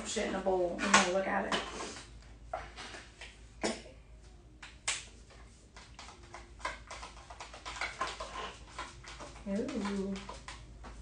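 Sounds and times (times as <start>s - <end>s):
plastic tubes clicking and knocking: 4.6s - 11.0s.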